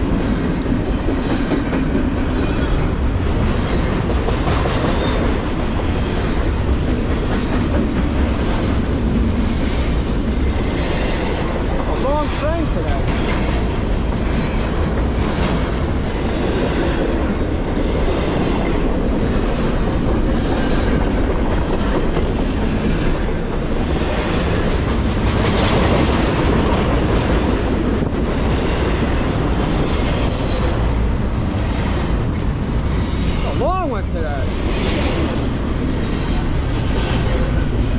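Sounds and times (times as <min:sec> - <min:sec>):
train wheels rumbling on rail: 0:00.0 - 0:37.9
faint wheel squeal: 0:22.5 - 0:24.4.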